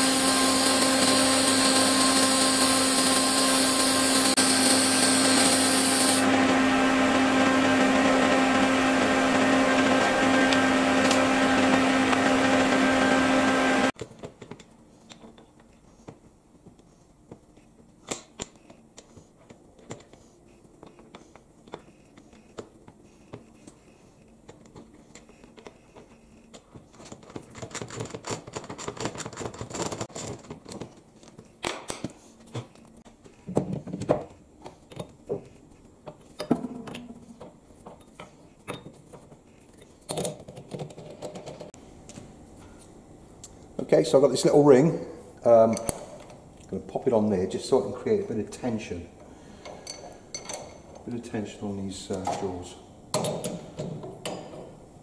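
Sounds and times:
welding arc buzzing: 0.0 - 14.0
metal clicks and clinks: 49.6 - 51.1.

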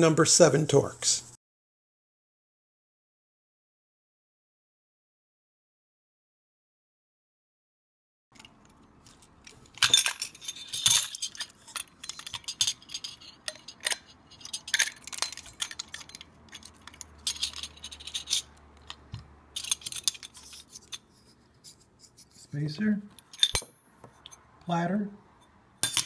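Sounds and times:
metallic clinks and clicks: 8.4 - 21.1, 23.2 - 24.4, 25.8 - 26.0.

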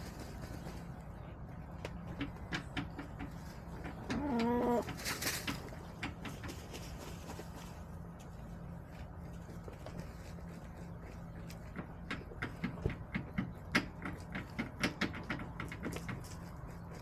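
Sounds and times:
hens pecking and scratching: 0.0 - 17.0
steady low hum: 4.8 - 17.0.

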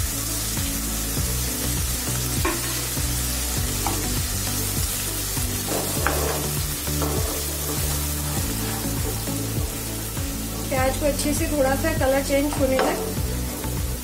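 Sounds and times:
onions sizzling in hot oil: 0.0 - 14.0
soft background music: 0.0 - 14.0
wooden spatula scraping: 5.6 - 9.4.

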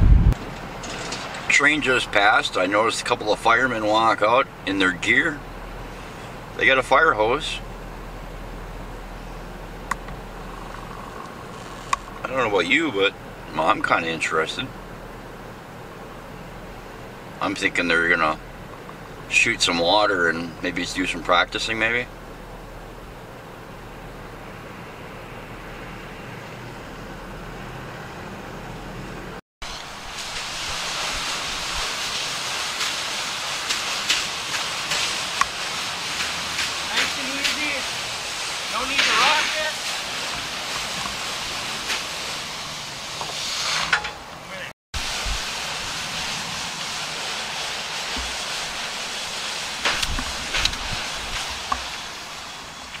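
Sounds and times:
low hum: 0.0 - 0.4, 5.4 - 12.5
fire hose spraying water: 0.4 - 26.4, 29.6 - 53.0
even hiss: 1.5 - 26.5, 29.6 - 53.0.

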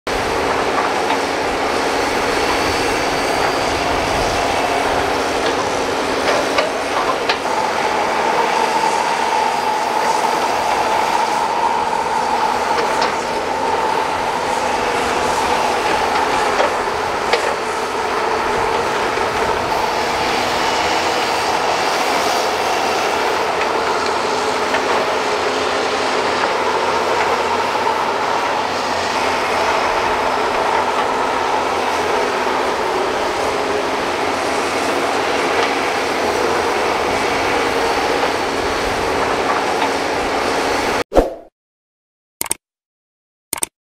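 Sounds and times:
excavator diesel engines running: 0.1 - 41.0
hydraulic whine: 0.1 - 41.0.

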